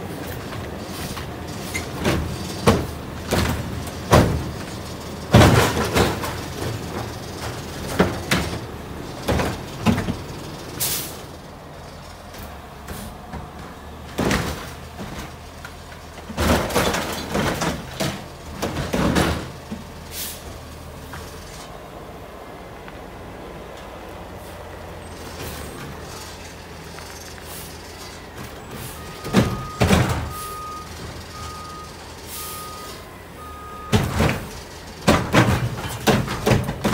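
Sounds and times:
truck engine running: 0.0 - 36.9
loud metal clanks and bangs: 1.5 - 11.1, 28.9 - 31.5, 33.8 - 36.9
air brake hiss: 10.8 - 11.2, 20.1 - 20.5, 27.5 - 27.8, 32.3 - 33.0.

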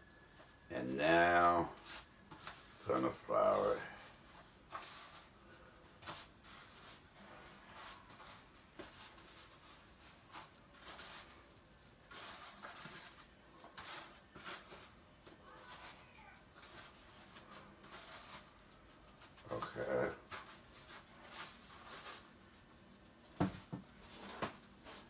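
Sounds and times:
soft rustles and taps: 19.2 - 25.0.

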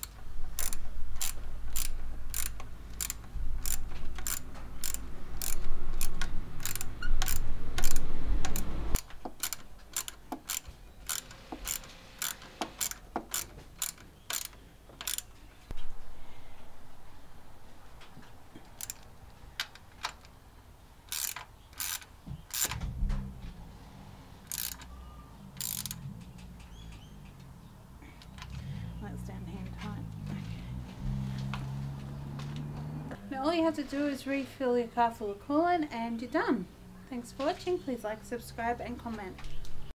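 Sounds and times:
ratchet wrench clicking: 0.0 - 15.3, 18.8 - 19.1, 21.1 - 22.8, 24.4 - 24.9, 25.6 - 26.4
low rumble: 22.8 - 24.4, 28.6 - 33.3.

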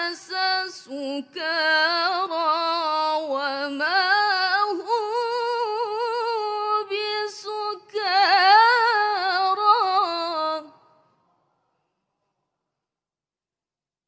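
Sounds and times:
woman reciting melodically: 0.0 - 10.9.

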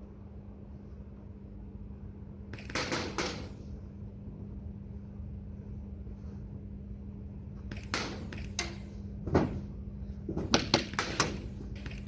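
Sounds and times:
airsoft gunshots: 2.6 - 3.5.

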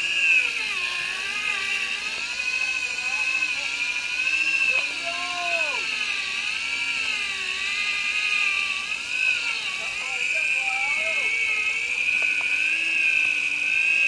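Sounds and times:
fishing reel whining: 0.0 - 14.0
person shouting: 4.7 - 5.9.

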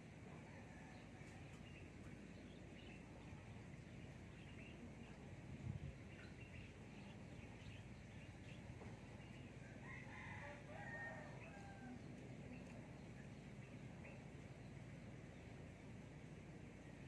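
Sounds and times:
low outdoor background noise: 0.0 - 17.0
rooster crowing: 9.6 - 12.0.

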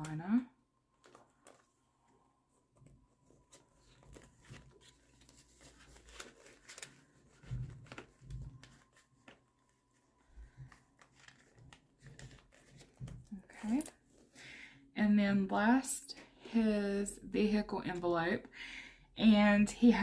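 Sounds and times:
plastic sleeve crinkling: 0.9 - 1.9, 2.8 - 14.3
paper bills rustling: 1.0 - 1.8, 2.8 - 14.3.

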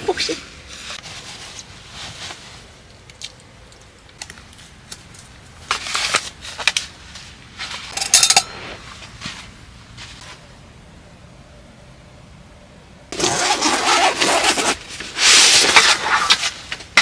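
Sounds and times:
rustling fabric: 0.7 - 2.8
metallic clink: 7.9 - 8.6.

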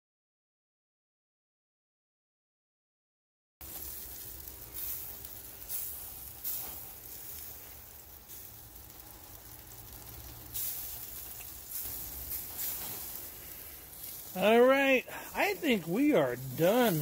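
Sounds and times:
sausages sizzling on a grill: 3.6 - 17.0
juices popping: 8.9 - 12.6.

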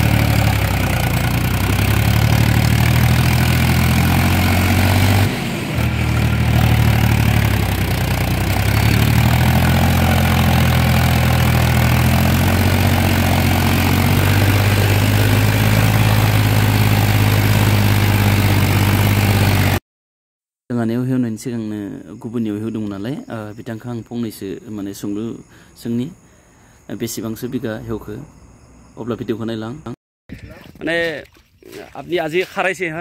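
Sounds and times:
tractor engine running under load: 0.0 - 19.8.

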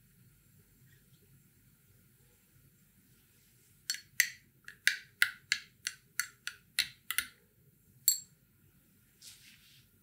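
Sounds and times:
spoon clinking against glass: 3.9 - 5.0, 8.1 - 8.3.

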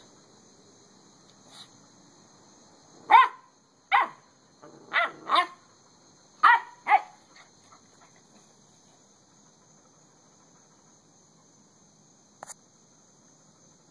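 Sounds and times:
insect trill: 0.0 - 13.9
puppy yapping: 3.1 - 4.2, 4.9 - 5.6, 6.4 - 7.2.

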